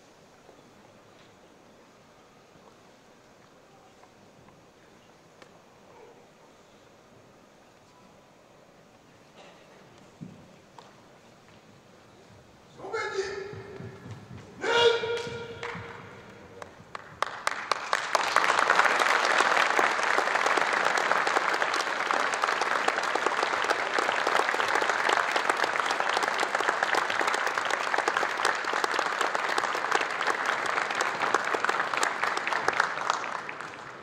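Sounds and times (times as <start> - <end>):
audience applauding: 15.2 - 34.0.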